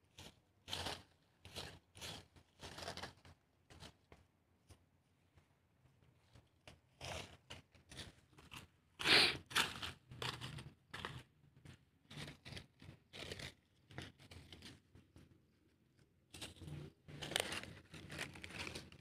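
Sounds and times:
dry leaves crunching and rustling: 16.4 - 19.0.

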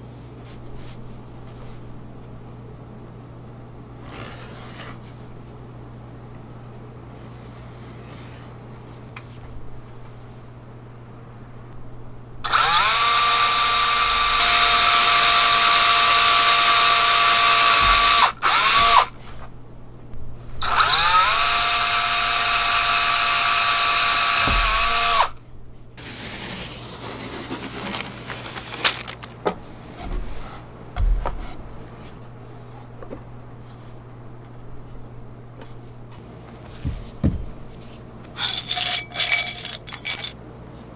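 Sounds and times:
cordless drill drilling into hardboard: 12.5 - 19.1, 20.6 - 25.4
handling knocks and clicks: 28.0 - 29.6, 38.3 - 40.4.

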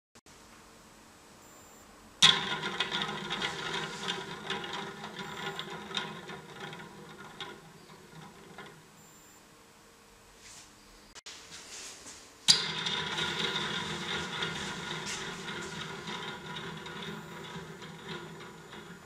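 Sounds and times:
toy windmill rattling whir: 2.2 - 8.8.

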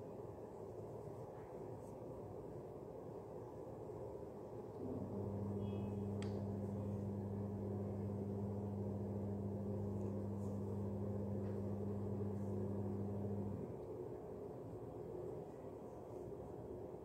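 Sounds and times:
low two-tone hum: 4.7 - 16.2.

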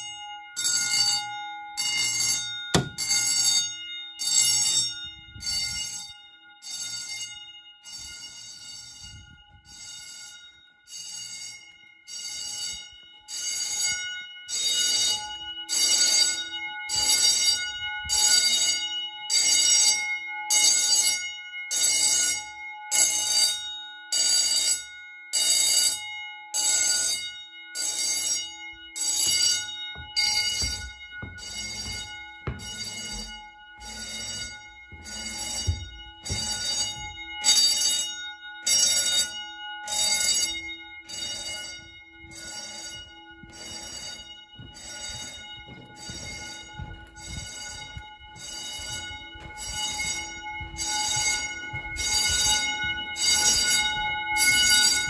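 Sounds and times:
fire alarm bells ringing: 0.0 - 55.0
footsteps on stairs: 2.7 - 3.4, 14.9 - 18.7, 29.0 - 38.0, 39.9 - 55.0.

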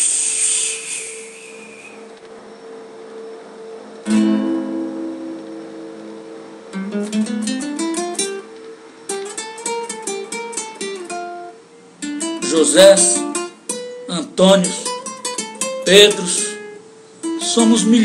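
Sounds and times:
acoustic guitar playing: 4.0 - 18.0.

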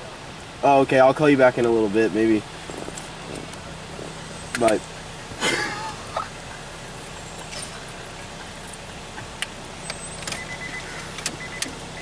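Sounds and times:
keys clicking in ignition: 9.4 - 11.8.

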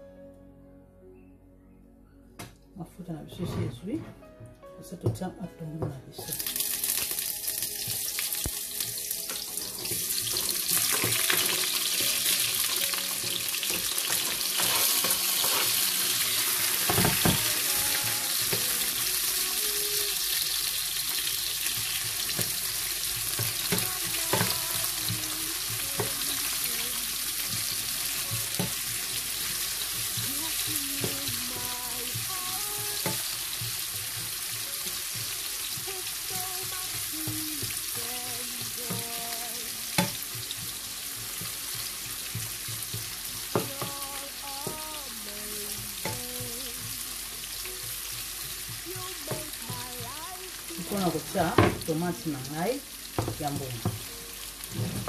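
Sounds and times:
onions sizzling in oil: 6.2 - 55.0.

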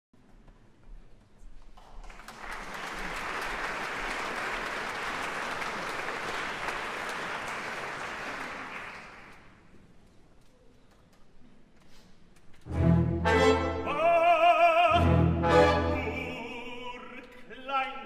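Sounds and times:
audience applauding: 1.8 - 9.7.

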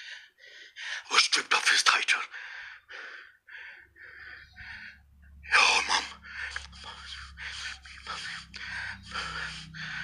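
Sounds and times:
whisper-like voices: 1.0 - 2.3, 5.4 - 9.8
low steady hum: 2.3 - 10.0
breathy gasps: 6.1 - 10.0.

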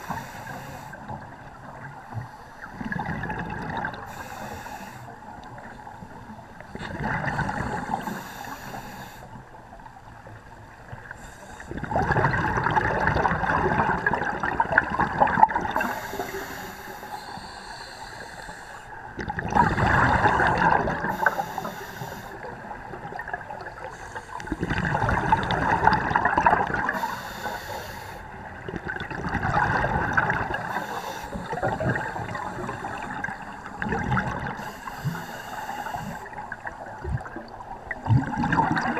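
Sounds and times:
underwater bubbling exhalations: 6.7 - 8.1, 11.7 - 16.4, 19.2 - 21.4, 22.4 - 27.0, 28.5 - 35.1, 36.0 - 38.9.

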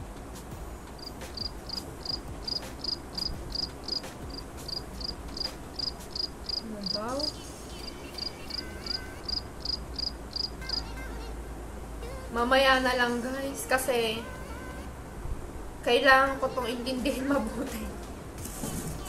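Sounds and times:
cricket chirping: 0.9 - 11.0.

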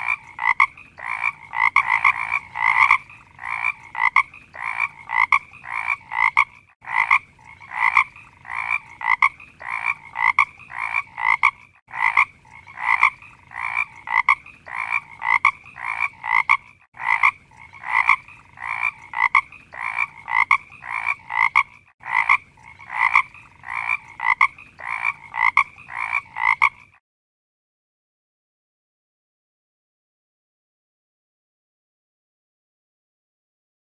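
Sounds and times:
frog croaking: 0.0 - 27.0.

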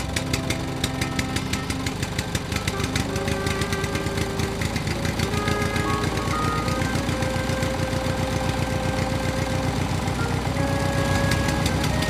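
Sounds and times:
background music with melody: 0.0 - 12.0
fast steady chugging: 0.0 - 12.0.

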